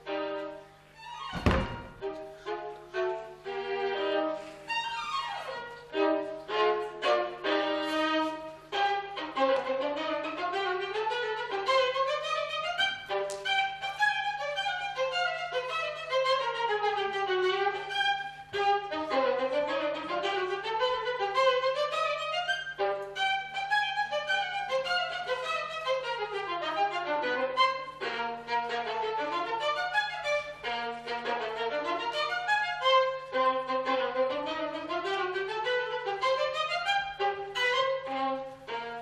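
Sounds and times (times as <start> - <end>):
solo violin playing: 0.0 - 39.0.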